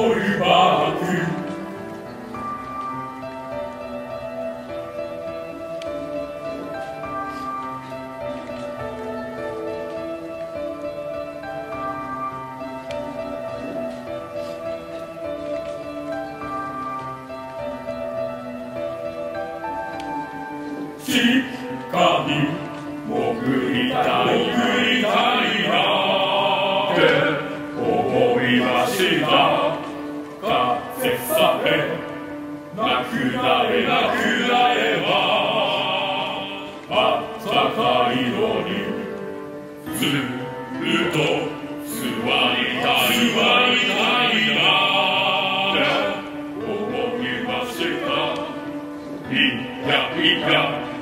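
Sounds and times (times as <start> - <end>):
male voices singing in chorus: 0.0 - 1.7, 21.0 - 51.0.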